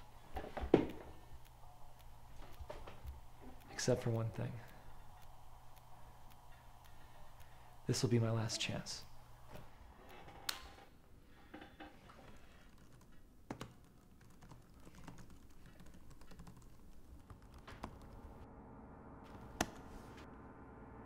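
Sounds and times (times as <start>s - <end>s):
faint steady hum: 0.0s - 21.0s
laptop keyboard typing: 12.3s - 18.4s.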